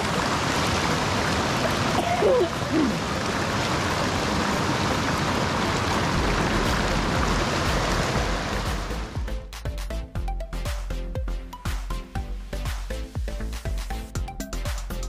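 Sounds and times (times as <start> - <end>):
creek and waterfall rushing: 0.0 - 9.7.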